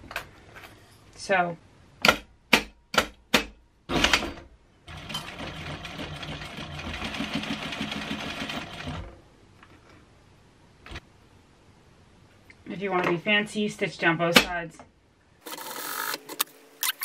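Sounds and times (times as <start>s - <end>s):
sewing machine stitching: 4.9s - 9.2s.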